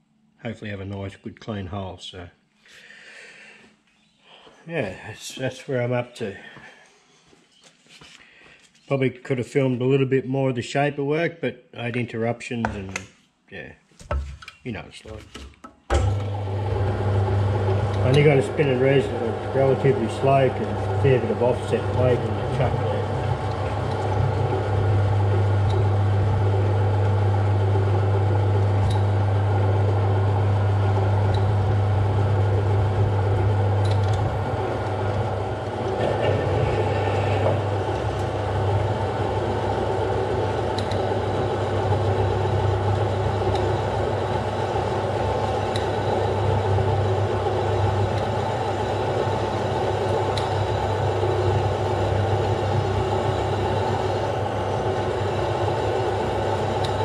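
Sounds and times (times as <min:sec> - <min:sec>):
motor hum: 0:15.9 - 0:57.0
metal lathe running: 0:16.0 - 0:57.0.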